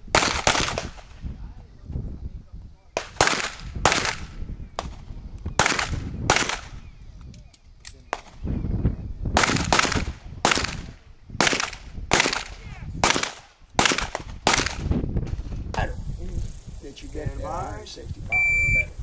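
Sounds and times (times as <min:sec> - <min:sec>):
pistol shots echoing: 0:03.0 - 0:05.0, 0:05.6 - 0:06.8, 0:09.4 - 0:14.8.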